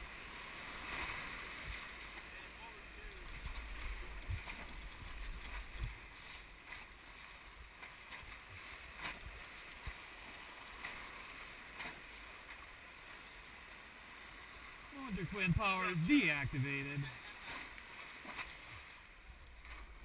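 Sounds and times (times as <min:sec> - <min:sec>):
whitewater rapids rushing: 0:15.0 - 0:17.8.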